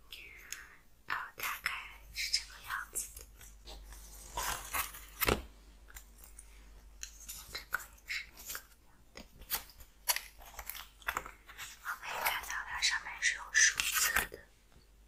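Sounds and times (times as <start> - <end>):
cardboard sheets crackling and rustling: 3.1 - 5.5.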